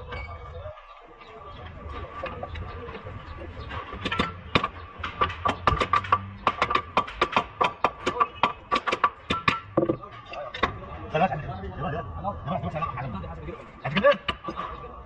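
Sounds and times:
hammer striking metal: 3.8s - 10.0s.

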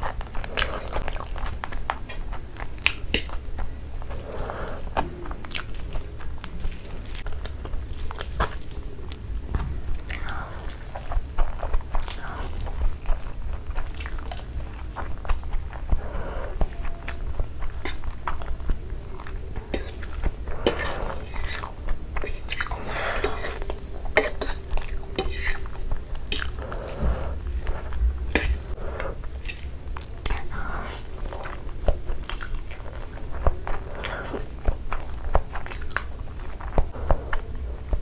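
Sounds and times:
mouth chewing noodles: 0.0s - 38.0s
metal fork scraping on plate: 25.2s - 25.7s.

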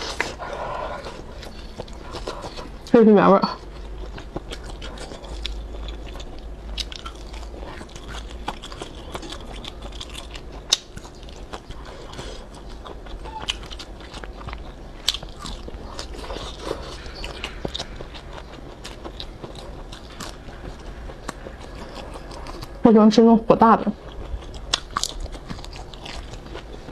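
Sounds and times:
chewing and crunching: 0.0s - 26.9s.

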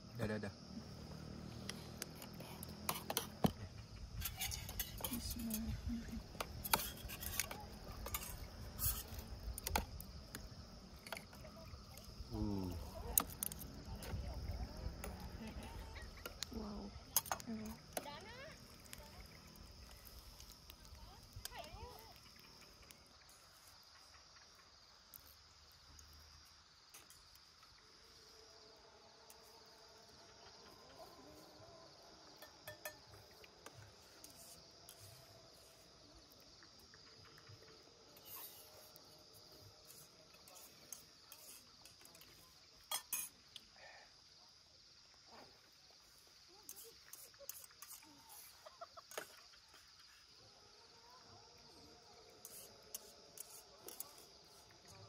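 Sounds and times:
crickets calling: 0.0s - 55.0s
spoons clinking on metal pan: 32.4s - 33.0s, 42.9s - 43.3s.

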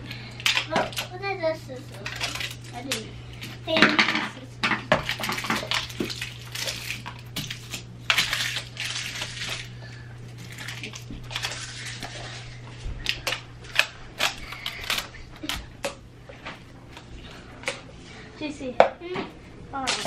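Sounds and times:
packaging rustling: 5.0s - 15.8s.

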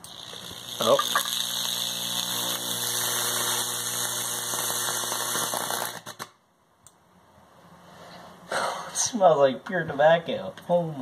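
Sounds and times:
transformer humming: 0.0s - 5.9s
electric arc sizzling: 0.0s - 6.4s
electrical crackles: 0.0s - 6.4s.

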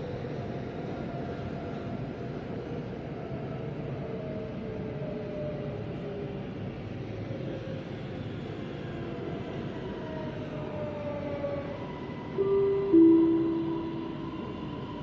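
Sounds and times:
metro train rumbling: 0.0s - 15.0s
electronic chime tone: 12.4s - 14.6s.

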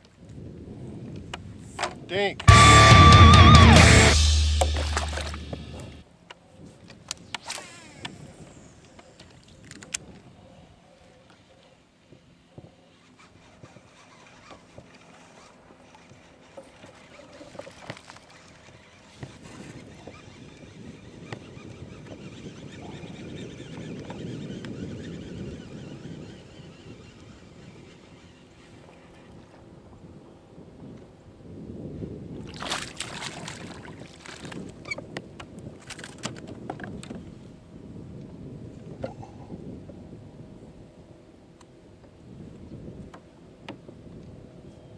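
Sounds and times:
water splashing and sloshing: 4.5s - 6.0s, 14.5s - 19.2s, 32.4s - 35.0s
fishing rod and reel clicks: 6.9s - 10.2s, 12.7s - 29.4s, 34.4s - 37.2s.

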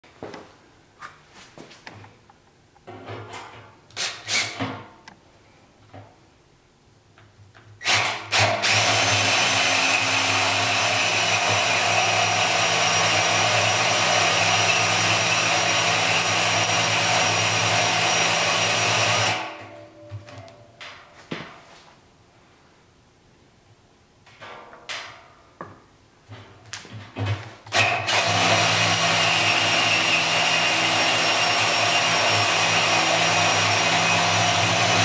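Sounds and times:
cordless drill cutting steel: 8.3s - 19.6s, 27.8s - 35.0s.

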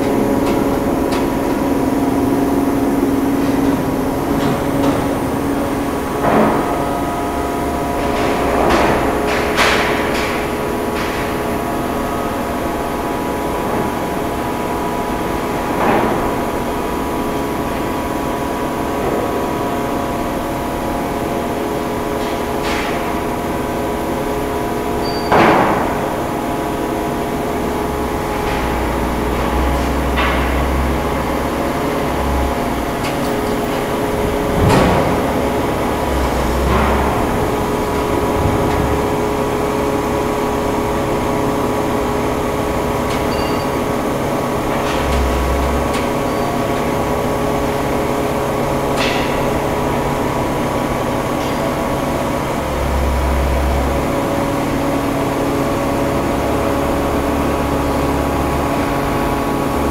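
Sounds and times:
forming press machine hum: 0.0s - 59.9s.

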